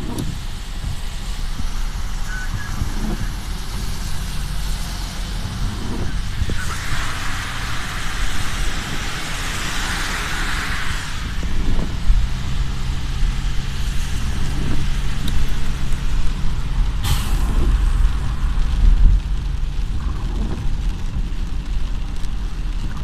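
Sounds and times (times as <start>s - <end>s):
car engine hum: 0.0s - 23.0s
rain and spray hiss: 0.0s - 23.0s
traffic rumble on wet road: 0.0s - 23.0s
short sharp hiss: 17.0s - 18.1s.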